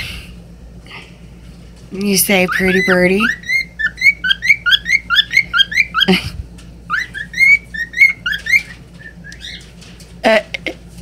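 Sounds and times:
cockatiel whistling: 2.4 - 6.2, 6.9 - 9.7.

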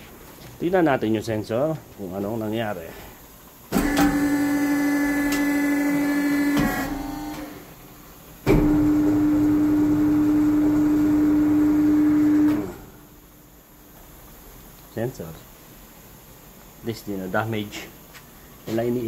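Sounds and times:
electric motor humming: 3.8 - 7.7.

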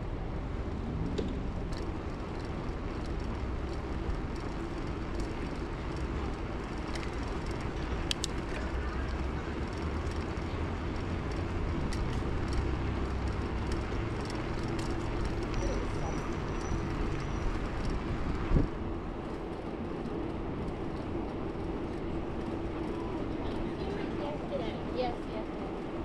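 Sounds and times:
bicycle riding on road: 0.0 - 26.0
passing traffic hum: 0.0 - 26.0
light clicks: 8.0 - 10.3.

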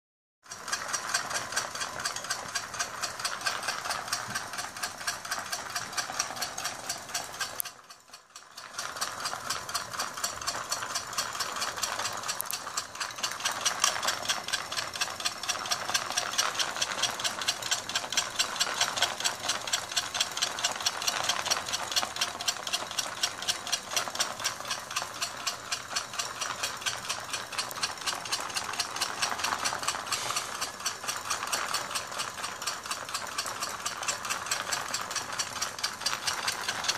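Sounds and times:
model motor rattling clatter: 0.4 - 36.9.

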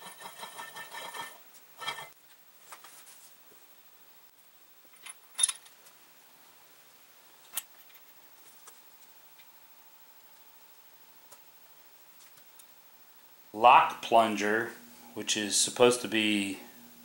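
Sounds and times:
metallic clinks and knocks: 4.9 - 5.7.

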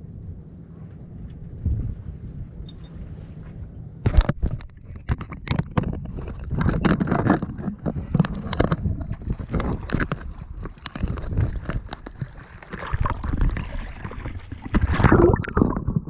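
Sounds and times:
wind rumble on microphone: 0.0 - 16.0.

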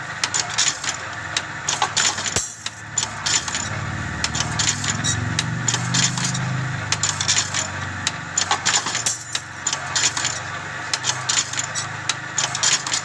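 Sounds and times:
metallic clicks and clanks: 0.2 - 13.0.

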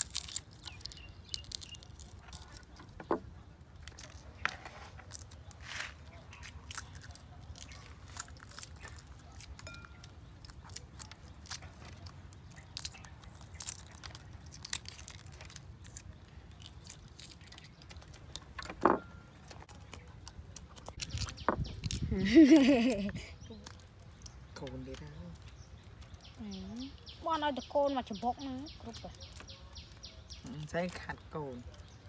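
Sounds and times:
eggshells cracking: 0.0 - 22.2.

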